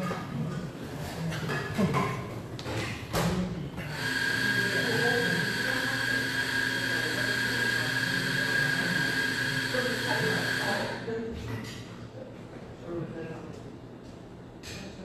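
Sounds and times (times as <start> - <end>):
small electric motor whine: 3.9 - 11.0.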